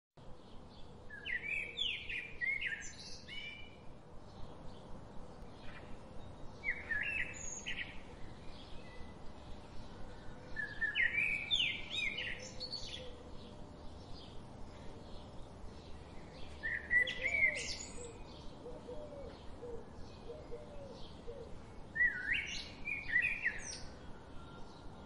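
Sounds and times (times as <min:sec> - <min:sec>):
songbird twittering: 0:05.6 - 0:14.4, 0:15.1 - 0:24.0.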